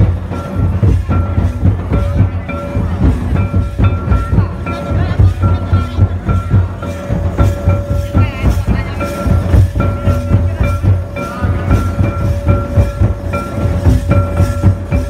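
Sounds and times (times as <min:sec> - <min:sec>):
fast drum beat: 0:00.0 - 0:15.0.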